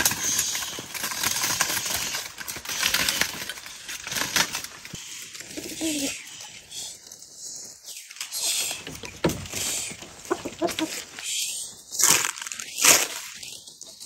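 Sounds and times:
dry leaves crunching and rustling: 0:00.0 - 0:06.2.

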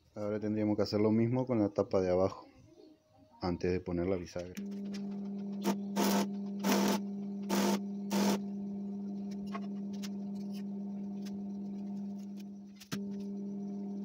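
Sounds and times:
electrical hum: 0:04.0 - 0:14.0
arc welding hissing bursts: 0:05.6 - 0:08.4.

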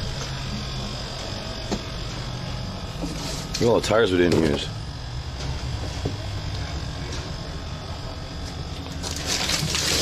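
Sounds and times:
steady low hum: 0:00.0 - 0:10.0
plastic bag rustling: 0:09.0 - 0:10.0.

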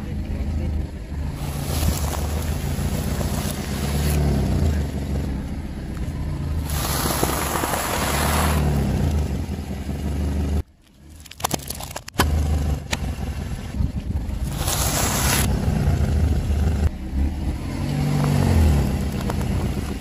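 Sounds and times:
car engine humming: 0:00.0 - 0:20.0
tyre crunching puffed balls: 0:01.4 - 0:04.3, 0:06.6 - 0:08.7, 0:14.4 - 0:15.5
tyre crunching popcorn: 0:01.4 - 0:04.4, 0:06.6 - 0:08.7, 0:10.8 - 0:12.4, 0:14.4 - 0:15.5.

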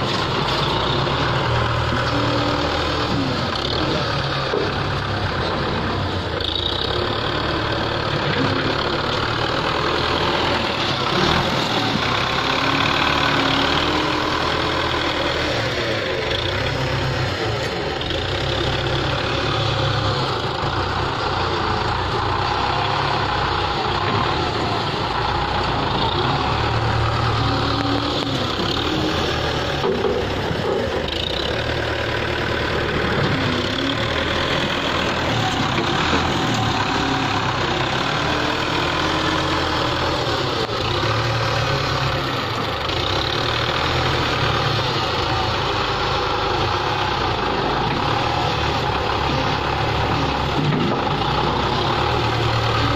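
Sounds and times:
tractor diesel engine running: 0:00.0 - 0:52.9.

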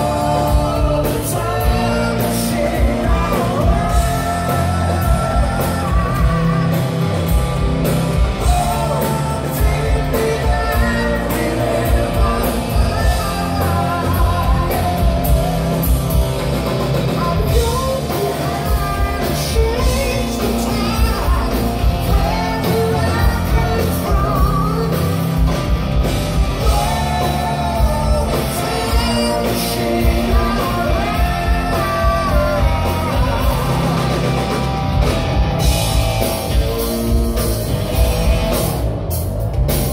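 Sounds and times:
person singing: 0:00.0 - 0:16.2, 0:17.0 - 0:25.6, 0:26.5 - 0:34.7
distorted electric guitar: 0:00.0 - 0:39.9
drum kit: 0:00.0 - 0:39.9
electric bass: 0:00.0 - 0:39.9.

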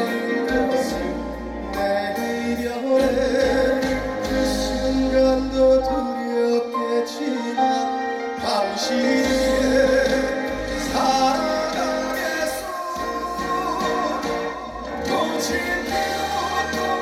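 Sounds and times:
backing music with bass line: 0:00.0 - 0:06.1, 0:08.4 - 0:17.0
man singing into microphone: 0:00.0 - 0:17.0.

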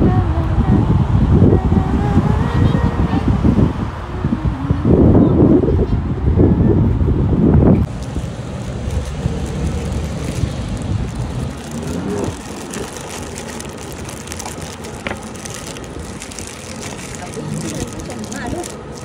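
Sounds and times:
plastic bag crinkling: 0:07.9 - 0:19.0.

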